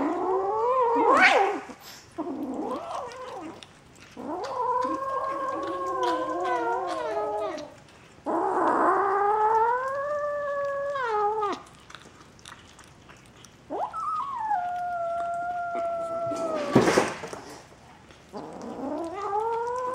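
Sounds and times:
kitten yowling: 4.2 - 7.7, 13.7 - 16.8, 18.8 - 19.9.

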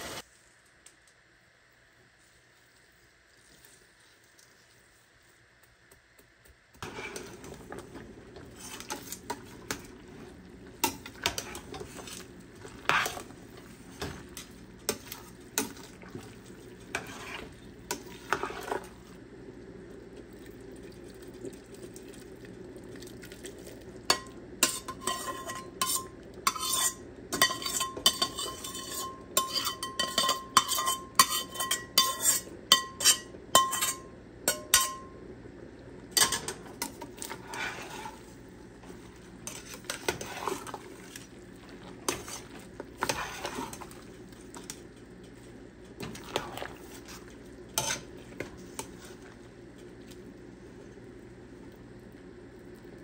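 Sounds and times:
food sizzling: 0.0 - 0.8, 1.4 - 53.0
metal utensil scraping a pot: 6.8 - 9.8, 10.8 - 13.3, 16.9 - 18.8, 24.1 - 35.0, 36.2 - 40.9, 42.0 - 44.0, 46.1 - 49.2.

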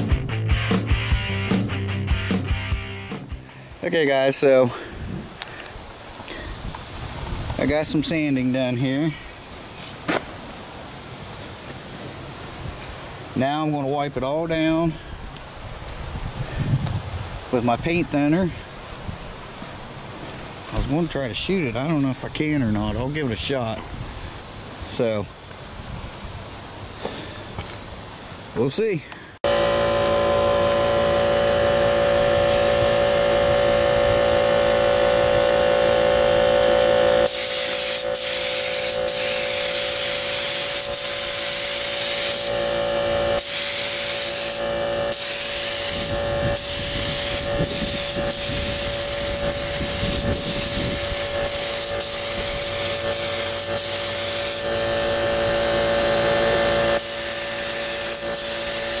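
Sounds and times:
air compressor humming: 29.4 - 59.0
spray gun hissing: 29.9 - 59.0.

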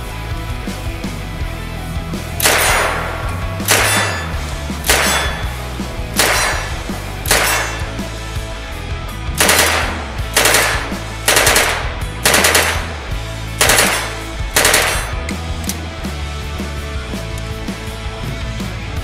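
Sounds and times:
rock music: 0.0 - 19.0
submachine gun firing bursts: 2.4 - 5.6, 6.2 - 8.0, 9.4 - 15.3.

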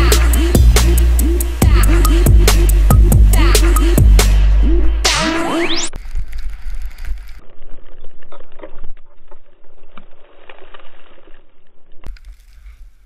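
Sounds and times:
skis and poles scraping snow: 5.4 - 13.0.

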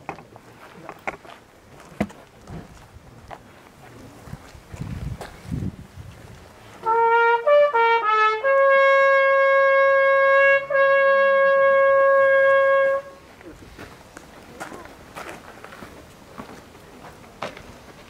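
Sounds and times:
trumpet-like horn notes: 6.8 - 13.2.

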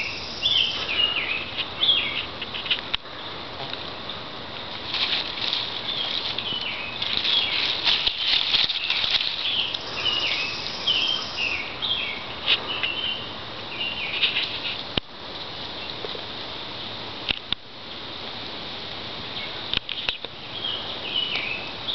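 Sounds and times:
bird chirping: 0.0 - 3.4, 5.7 - 14.4, 19.4 - 21.9
rustling and snapping weeds: 4.6 - 10.3.

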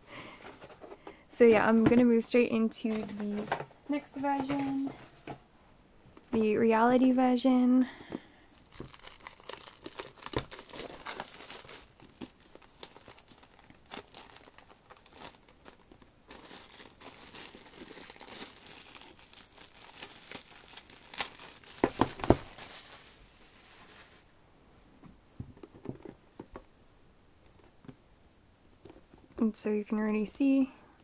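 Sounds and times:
plastic shrink-wrap crinkling: 8.4 - 24.3.

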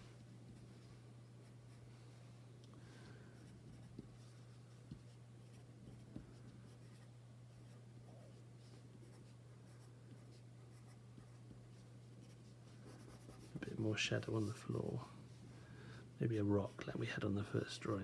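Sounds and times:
steady low hum: 0.0 - 18.0
pencil scratching on paper: 3.4 - 14.6.

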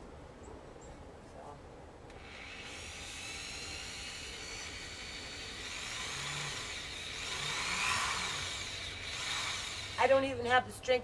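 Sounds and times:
electric drill whining: 2.1 - 10.2.

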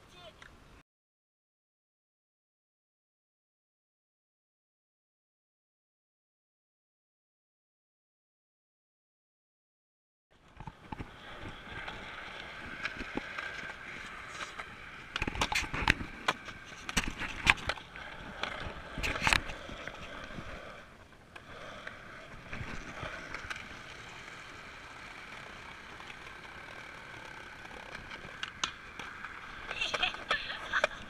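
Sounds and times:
skateboard wheels rolling on concrete: 10.3 - 31.0.

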